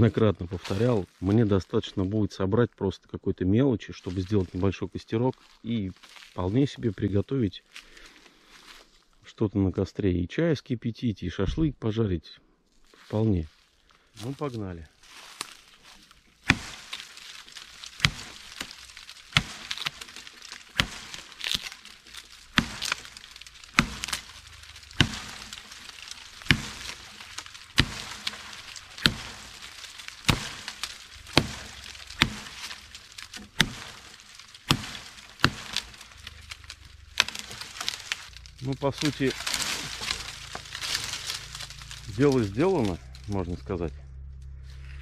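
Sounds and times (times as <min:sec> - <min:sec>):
machete chopping log: 0:16.4 - 0:38.4, 0:39.0 - 0:42.5.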